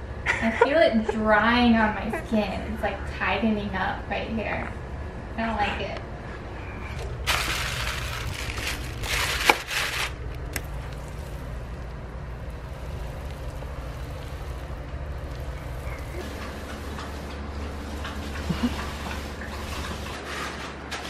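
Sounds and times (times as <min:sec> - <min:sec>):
steady low hum: 0:00.0 - 0:21.0
paint roller crackling hiss: 0:10.7 - 0:20.6.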